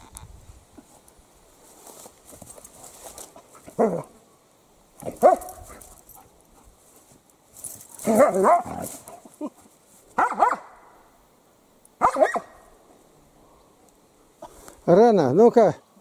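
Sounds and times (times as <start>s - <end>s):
dog barking: 5.1s - 5.6s, 8.1s - 8.8s, 10.2s - 10.8s, 12.0s - 12.6s.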